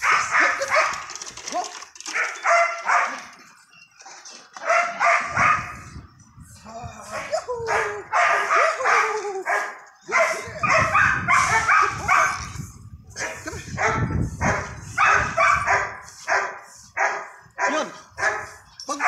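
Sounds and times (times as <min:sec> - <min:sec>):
dog barking: 0:00.0 - 0:01.0, 0:02.1 - 0:03.3, 0:04.6 - 0:05.8, 0:07.2 - 0:12.6, 0:13.2 - 0:18.6.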